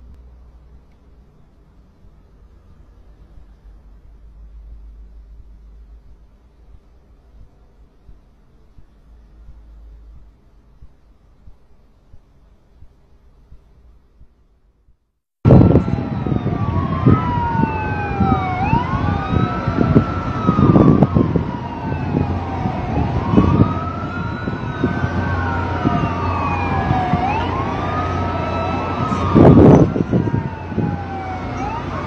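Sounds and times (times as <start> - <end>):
heavy low rumbling: 2.3 - 12.9, 15.4 - 32.0
emergency sirens wailing: 15.4 - 32.0.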